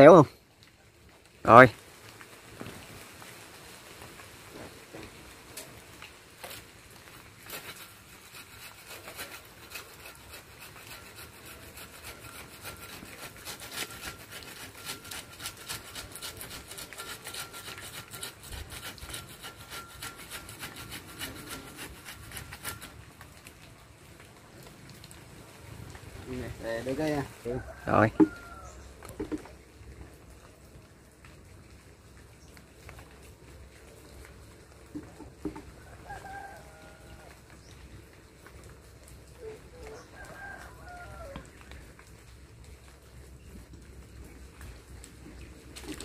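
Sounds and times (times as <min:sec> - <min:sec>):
hacksaw cutting branch: 0:06.4 - 0:23.0.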